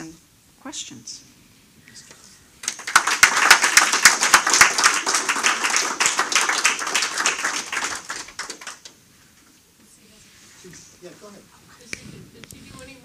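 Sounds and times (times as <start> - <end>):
audience applauding: 2.6 - 9.0.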